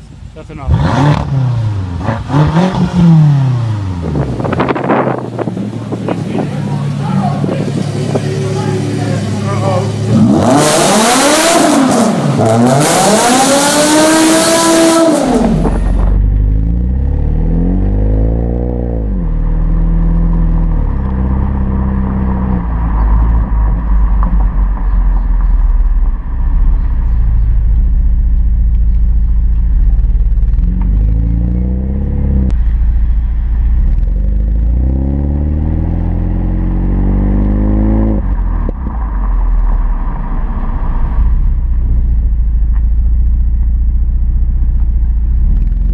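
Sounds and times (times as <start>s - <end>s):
car exhaust idling and revving: 0.0s - 45.9s
car engine revving hard: 0.5s - 5.2s, 7.8s - 23.5s, 34.3s - 38.4s.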